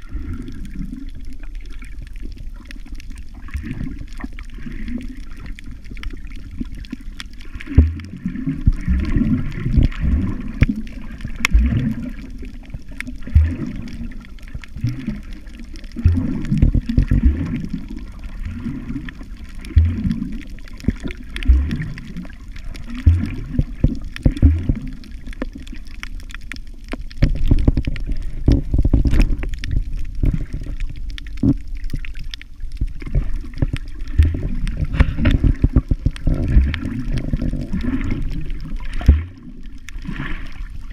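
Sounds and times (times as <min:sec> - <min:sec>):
muffled underwater water sloshing: 0:00.0 - 0:40.9
dull low thumps: 0:07.8 - 0:08.2.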